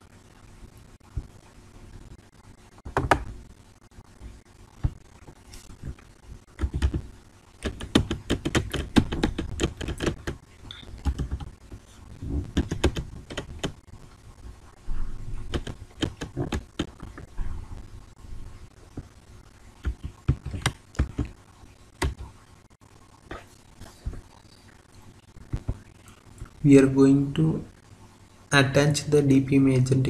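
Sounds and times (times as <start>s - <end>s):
computer keyboard typing: 6.5s - 11.5s, 12.4s - 13.8s, 15.4s - 17.3s, 19.8s - 21.3s, 22.0s - 22.3s.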